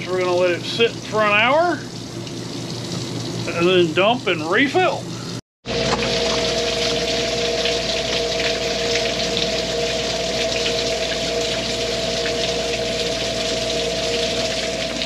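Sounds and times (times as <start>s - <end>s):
steady two-note hum: 5.2s - 15.0s.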